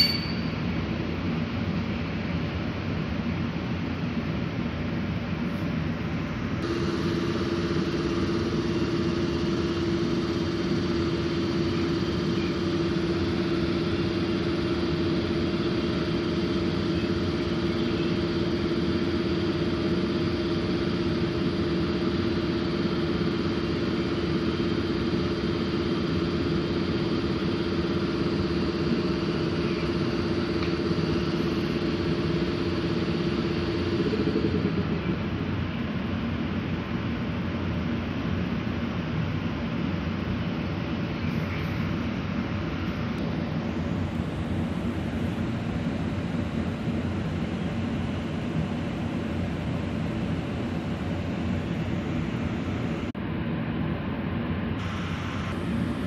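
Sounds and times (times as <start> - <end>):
electric locomotive hum: 0.0 - 1.4, 6.3 - 38.4, 54.8 - 56.0.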